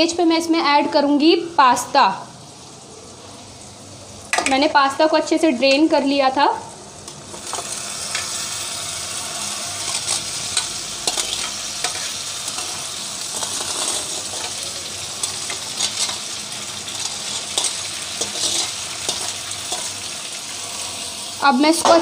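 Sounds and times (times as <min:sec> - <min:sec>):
masala sizzling in hot oil: 0:00.0 - 0:22.0
spatula scraping metal pan: 0:09.8 - 0:14.6, 0:17.0 - 0:20.0.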